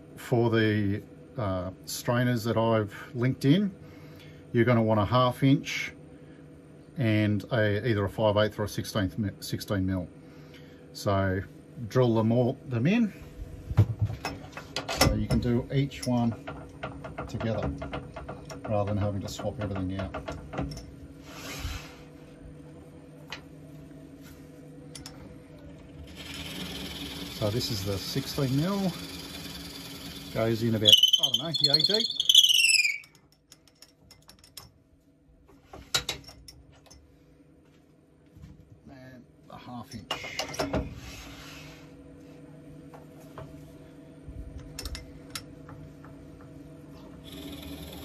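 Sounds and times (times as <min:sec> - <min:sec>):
wood lathe humming: 0:25.9 - 0:32.2.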